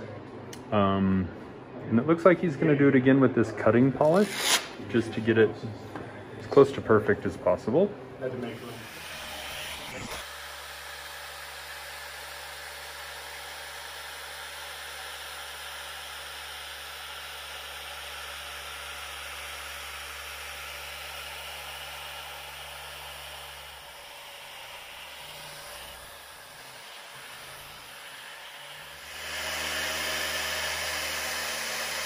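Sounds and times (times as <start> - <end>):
orbital polisher whirring: 4.1 - 4.8, 8.4 - 32.0
polisher low hum: 8.4 - 32.0.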